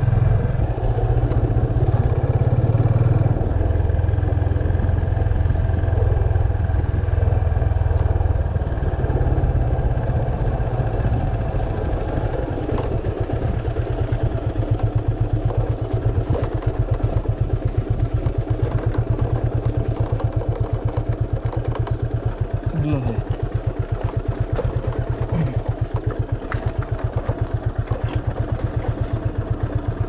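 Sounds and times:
motorcycle engine running: 0:00.0 - 0:30.0
clicks and rattles from rough ground: 0:11.2 - 0:30.0.

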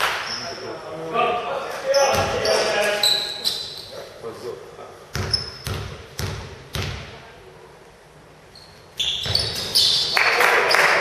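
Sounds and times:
ball bouncing on hard floor: 0:05.1 - 0:07.2.

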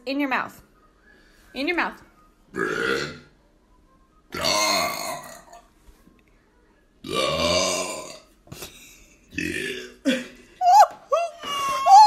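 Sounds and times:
loud drawn-out burps: 0:02.5 - 0:03.3, 0:04.3 - 0:05.6, 0:07.0 - 0:08.3, 0:09.3 - 0:10.3.

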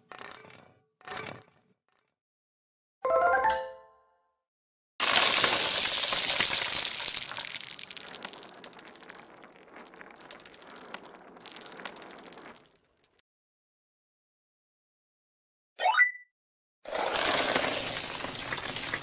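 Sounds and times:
small hard balls clattering: 0:05.0 - 0:13.2, 0:16.9 - 0:19.0.

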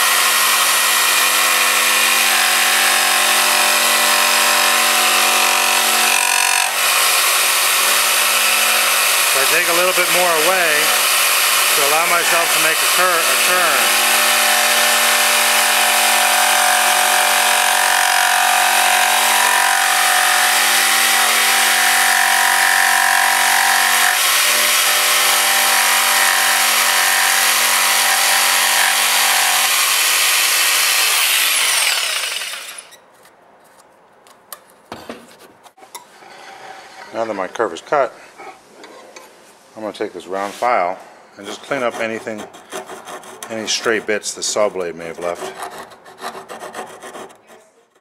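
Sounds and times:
electric jigsaw cutting wood: 0:00.0 - 0:32.9.

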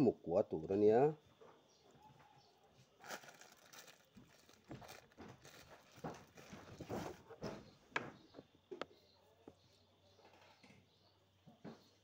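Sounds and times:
plastic bag crinkling: 0:03.0 - 0:07.3.

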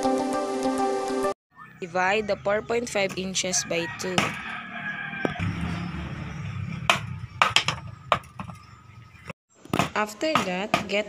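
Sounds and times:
machete chopping bamboo: 0:09.7 - 0:11.0.

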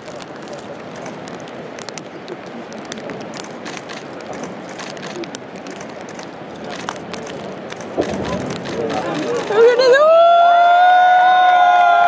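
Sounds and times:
steady noise haze: 0:00.0 - 0:12.0
faint murmuring voices: 0:00.4 - 0:10.0
sharp clicks: 0:02.7 - 0:09.7.

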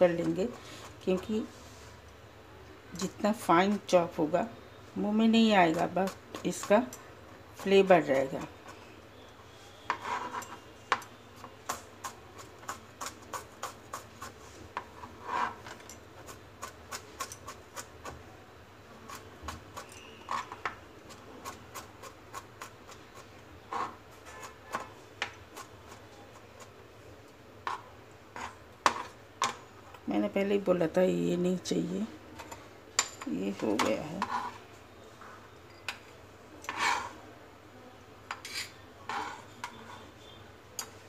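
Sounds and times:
knife scraping cutting board: 0:09.8 - 0:17.9, 0:23.7 - 0:24.9, 0:27.6 - 0:29.2, 0:34.0 - 0:34.6, 0:36.6 - 0:37.2, 0:38.3 - 0:40.1.

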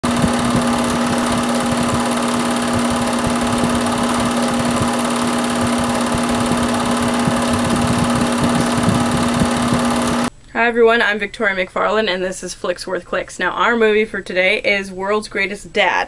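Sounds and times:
film projector clattering: 0:00.0 - 0:10.3.

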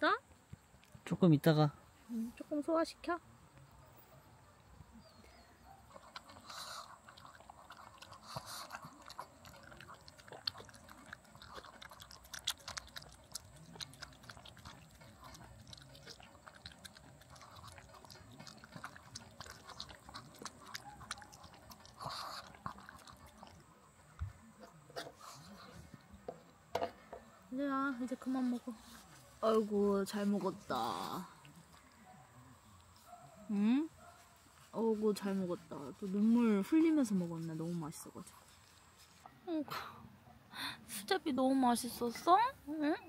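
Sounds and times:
dog chewing and smacking: 0:05.7 - 0:26.4.

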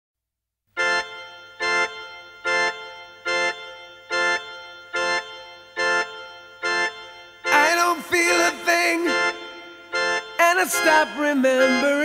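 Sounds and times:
organ-like keyboard chords: 0:00.7 - 0:12.0.

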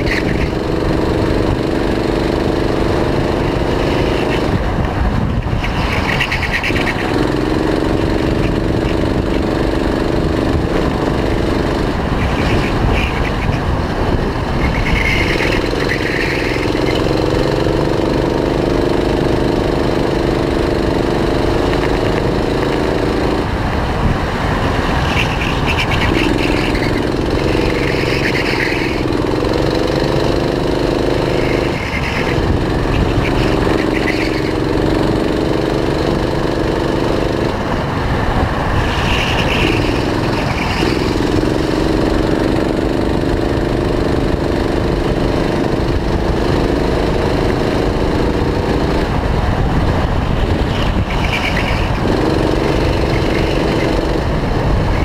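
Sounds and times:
go-kart engine revving: 0:00.0 - 0:55.0
wind: 0:00.0 - 0:55.0.

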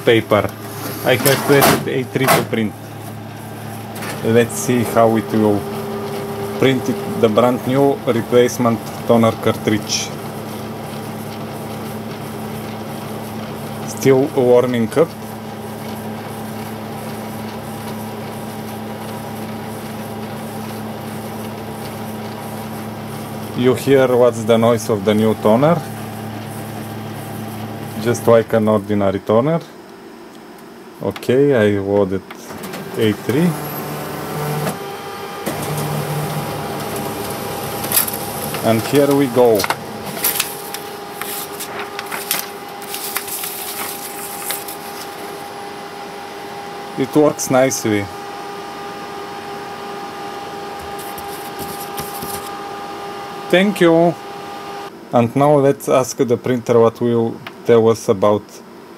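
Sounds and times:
laser printer humming: 0:00.0 - 0:55.1
paper rustling: 0:36.7 - 0:45.5, 0:50.8 - 0:52.6.

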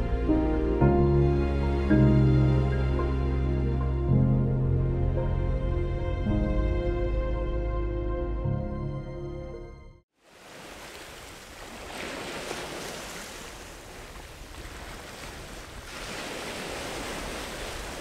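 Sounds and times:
background music: 0:00.0 - 0:10.0
waves breaking on shore: 0:10.2 - 0:18.0.

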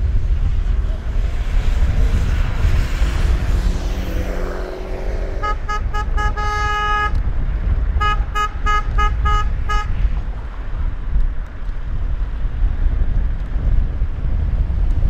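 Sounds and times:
low rumble: 0:00.0 - 0:15.0
car horn honking: 0:05.2 - 0:10.2.

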